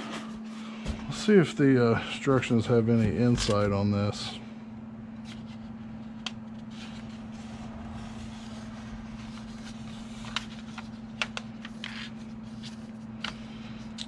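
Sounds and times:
steady low hum: 0:00.0 - 0:14.0
paper pages rustling: 0:05.2 - 0:13.4.

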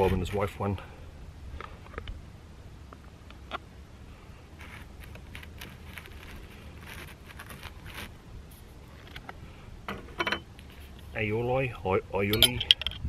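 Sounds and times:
knife sawing bread crust: 0:04.6 - 0:08.2.

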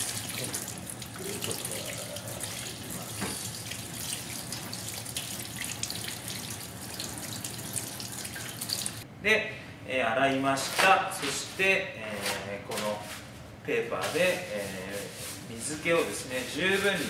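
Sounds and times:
tap water running into sink: 0:00.0 - 0:09.0.

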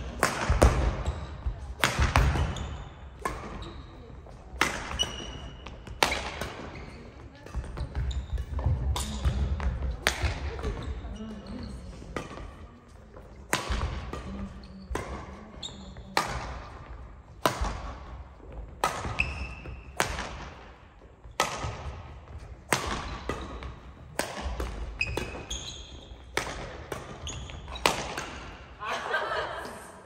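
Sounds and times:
badminton racket hitting shuttlecock: 0:00.0 - 0:01.0, 0:01.8 - 0:06.8, 0:13.4 - 0:15.2, 0:16.1 - 0:28.7
shoes squeaking on wooden court: 0:00.9 - 0:13.5, 0:14.4 - 0:16.2, 0:18.5 - 0:20.0, 0:21.0 - 0:28.6.

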